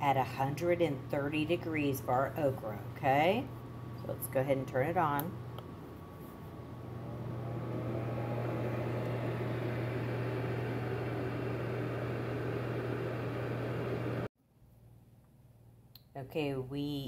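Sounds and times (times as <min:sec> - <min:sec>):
food dehydrator fan humming: 0:06.7 - 0:14.3.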